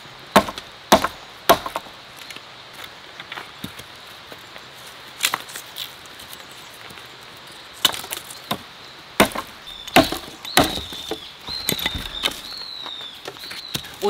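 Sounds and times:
hatchet chopping wood: 0:00.3 - 0:01.9, 0:09.2 - 0:12.5.

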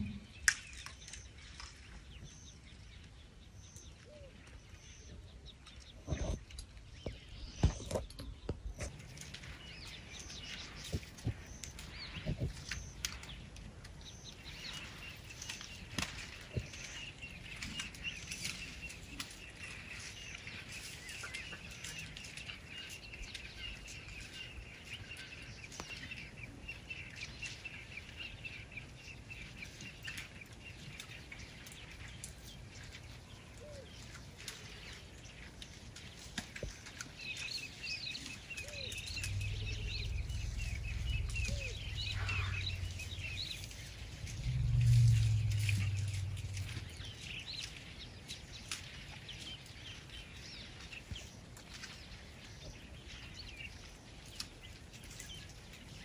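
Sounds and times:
small birds chirping: 0:00.0 - 0:56.0
sharp snaps and cracks: 0:10.1 - 0:16.9, 0:35.6 - 0:49.4
low rumble: 0:38.7 - 0:48.2.

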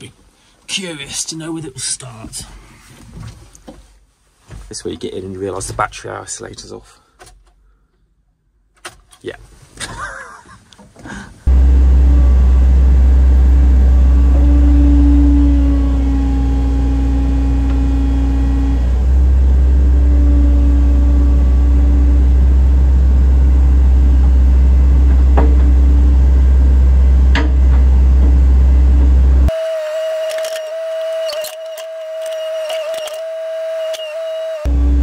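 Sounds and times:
digger diesel engine running: 0:11.5 - 0:29.5, 0:34.7 - 0:35.0.

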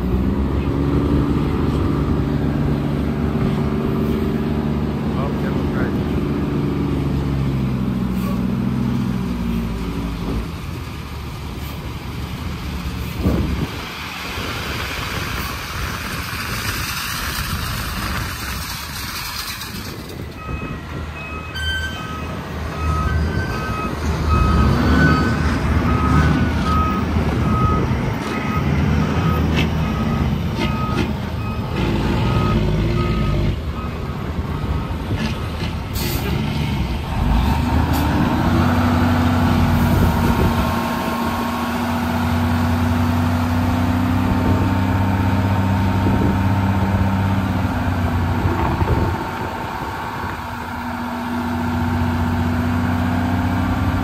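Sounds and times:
truck backup alarm beeping: 0:20.3 - 0:35.2
diesel truck engine running: 0:22.2 - 0:54.0.

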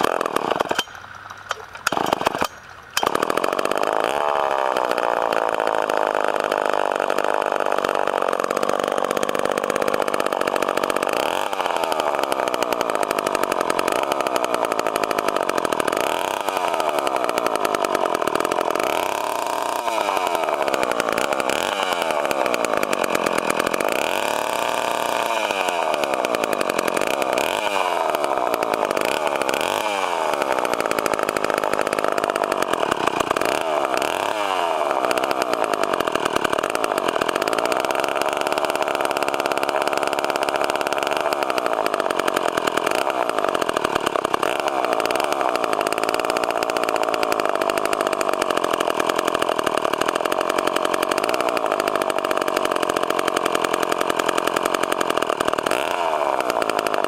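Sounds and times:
chainsaw revving and idling: 0:00.0 - 0:57.0.

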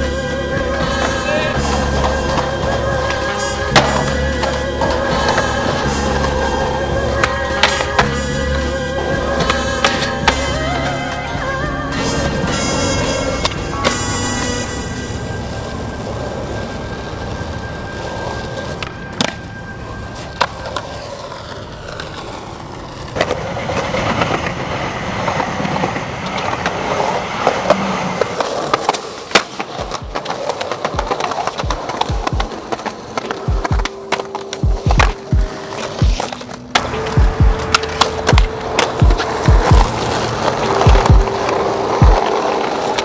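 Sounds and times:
skateboard wheels rolling on concrete: 0:00.0 - 0:43.0
skateboard clacks: 0:00.6 - 0:43.0
skateboard pops and landings: 0:03.6 - 0:05.5, 0:28.4 - 0:43.0.

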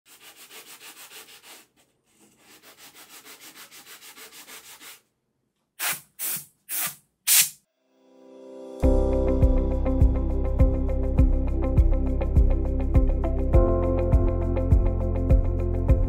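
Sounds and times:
sanding block strokes: 0:00.1 - 0:05.0, 0:05.8 - 0:07.6.

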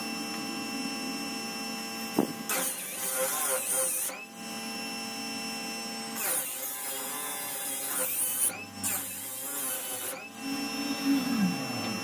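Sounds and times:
disc sander motor hum: 0:07.6 - 0:12.0.

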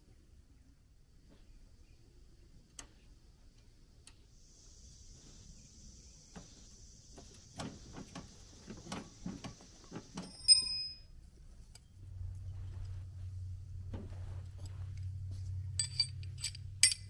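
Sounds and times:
ringing metallic clink: 0:10.3 - 0:11.1, 0:15.7 - 0:17.0
metal clicks and knocks: 0:15.8 - 0:17.0.

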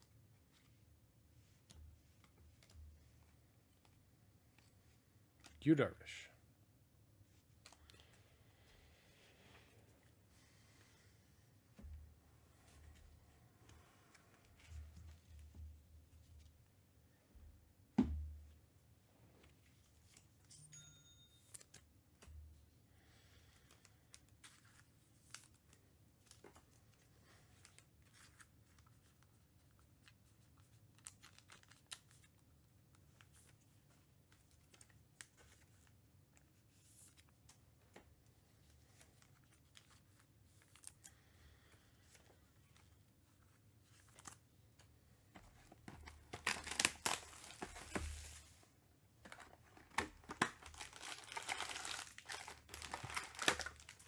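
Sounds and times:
cardboard box tearing and crinkling: 0:46.4 - 0:48.3, 0:50.6 - 0:53.9.

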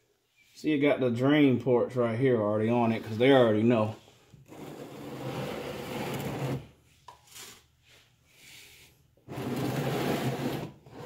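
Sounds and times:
plastic container scraping on concrete: 0:04.4 - 0:07.6, 0:09.3 - 0:11.0.

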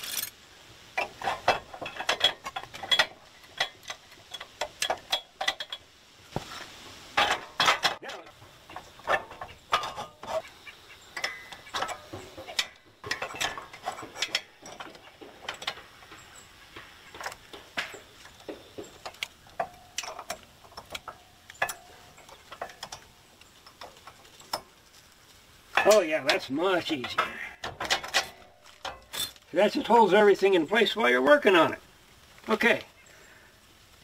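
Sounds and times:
metal parts clinking and knocking: 0:00.0 - 0:00.4, 0:01.0 - 0:05.8, 0:07.2 - 0:10.4, 0:11.1 - 0:24.7, 0:25.7 - 0:29.4
metal clanks: 0:01.0 - 0:06.6, 0:07.2 - 0:10.5, 0:11.1 - 0:24.8, 0:25.7 - 0:29.5.

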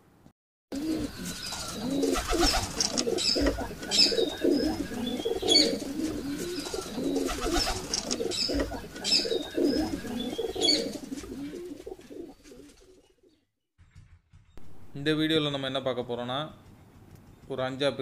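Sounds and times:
pigeons cooing: 0:00.7 - 0:13.4
small birds chirping: 0:00.8 - 0:13.5.

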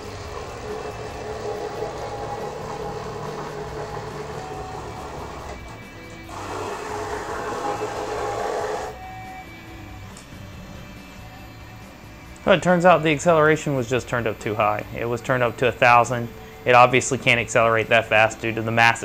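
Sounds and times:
printer axis motor whine: 0:00.0 - 0:09.4.

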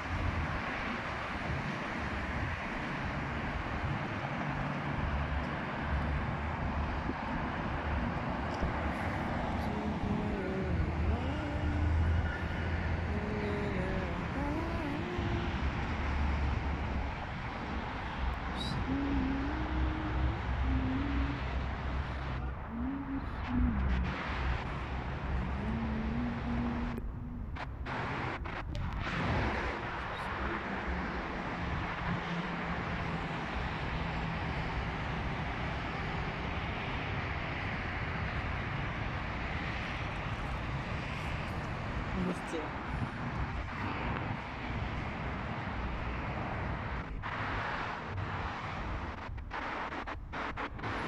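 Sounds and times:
cars passing on road: 0:00.0 - 0:51.0
heavy low rumble: 0:05.0 - 0:34.6.

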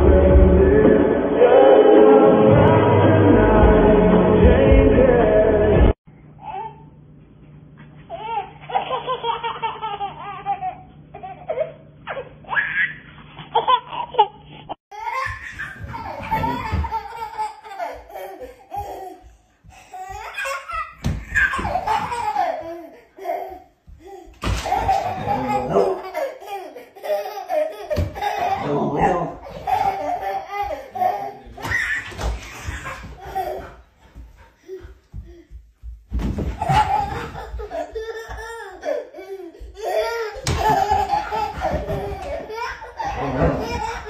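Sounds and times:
toddler giggling: 0:08.1 - 0:14.4, 0:15.0 - 0:19.3, 0:20.0 - 0:35.6, 0:36.5 - 0:44.0
baby laughing: 0:08.1 - 0:35.6, 0:36.4 - 0:44.0.

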